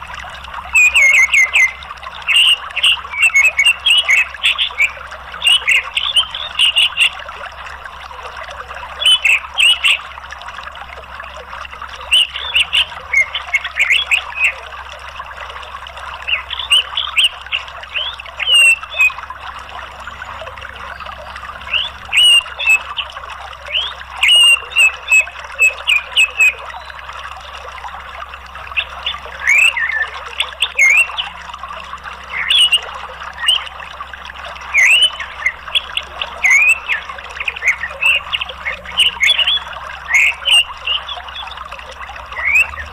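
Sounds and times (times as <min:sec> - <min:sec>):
flowing water: 0:00.0 - 0:42.9
thrush chirping and trilling: 0:00.6 - 0:07.3, 0:16.1 - 0:27.3, 0:28.7 - 0:42.9.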